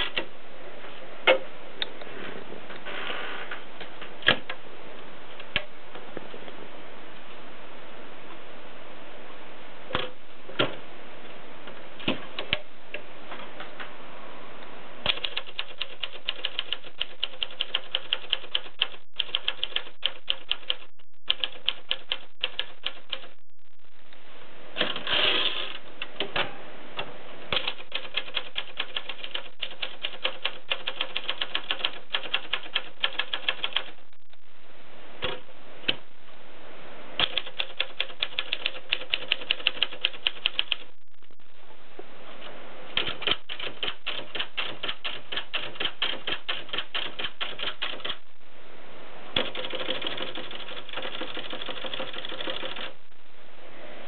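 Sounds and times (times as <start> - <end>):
typewriter keys striking: 27.5 - 33.9, 43.0 - 48.2, 49.4 - 52.9.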